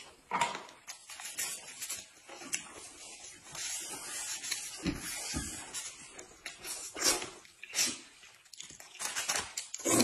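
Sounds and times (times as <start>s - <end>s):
person slurping and smacking food: 9.7s - 10.0s.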